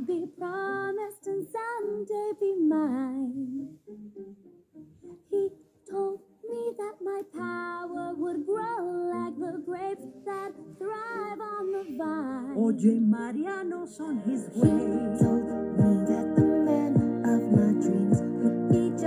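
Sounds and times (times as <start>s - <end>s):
girl singing: 0.0s - 3.8s, 5.2s - 19.0s
pop backing track: 13.9s - 19.0s.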